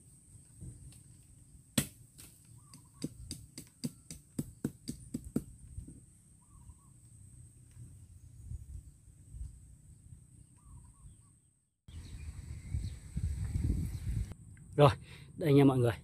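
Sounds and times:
sharp knocks: 2.7s - 5.5s.

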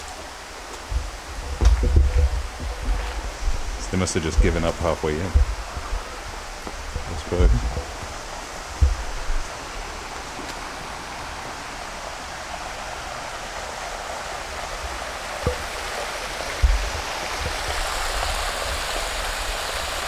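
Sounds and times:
water rushing over rocks: 0.0s - 20.0s
low thumps: 0.8s - 9.6s, 15.4s - 15.8s, 16.5s - 17.9s.

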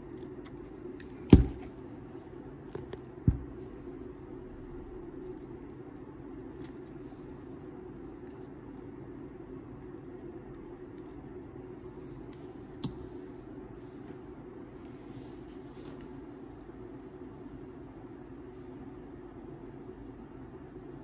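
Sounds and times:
scissors snipping: 0.0s - 1.8s
low background hum: 0.0s - 21.0s.

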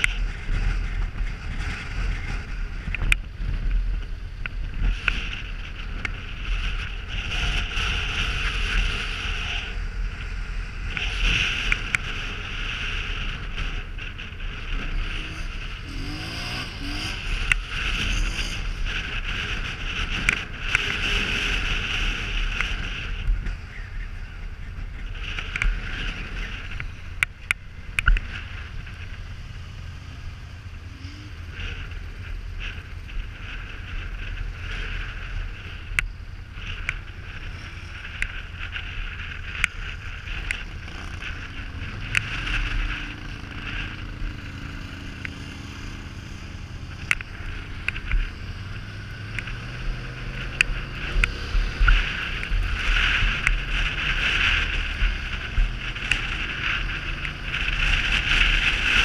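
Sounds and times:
quad bike engine rumbling: 0.0s - 59.0s
wind hiss: 0.0s - 59.0s.

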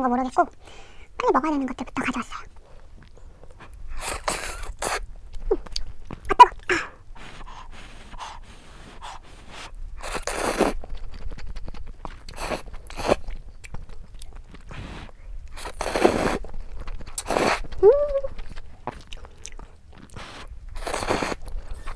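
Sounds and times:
chewing and mouth sounds: 2.4s - 21.9s
person slurping noodles: 4.0s - 5.0s, 7.2s - 10.8s, 12.3s - 13.3s, 14.7s - 16.5s, 17.1s - 18.3s, 20.0s - 21.9s.

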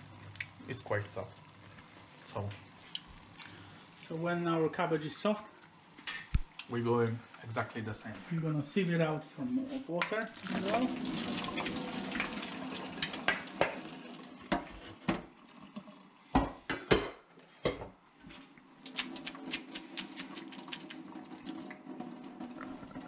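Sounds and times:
water pouring into metal colander: 10.2s - 14.4s.

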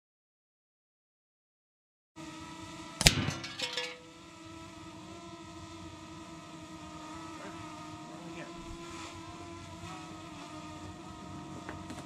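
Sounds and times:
metal cans clattering on dirt: 3.3s - 4.0s.

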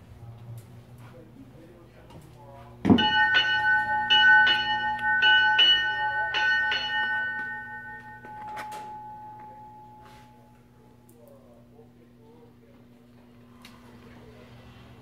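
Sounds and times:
ship's bell ringing: 2.9s - 11.0s.

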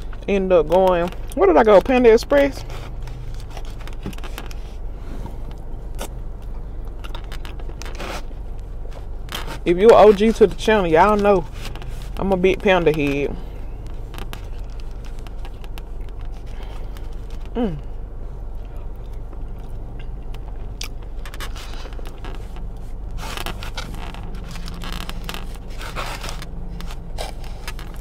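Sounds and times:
steady low hum: 0.0s - 28.0s
person humming mm: 17.5s - 17.9s
chewing: 18.5s - 22.6s.

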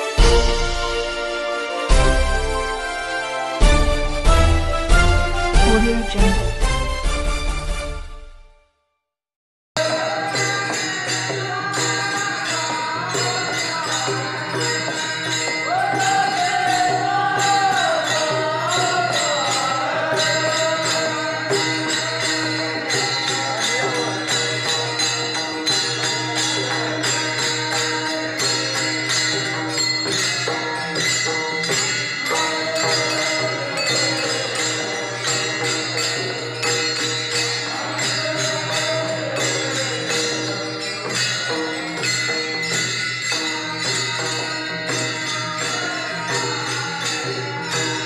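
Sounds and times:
hand cymbals clashing: 9.8s - 48.0s
men singing: 9.8s - 48.0s.

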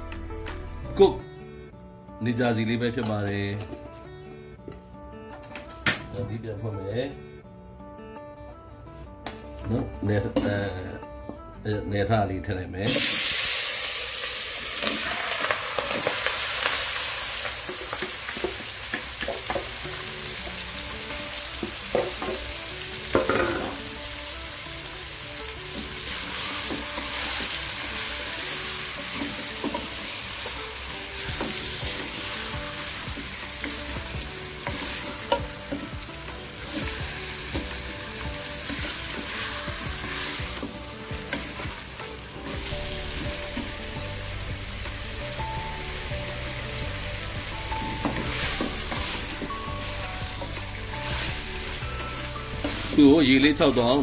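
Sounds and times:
meat sizzling in hot oil: 12.9s - 54.0s.

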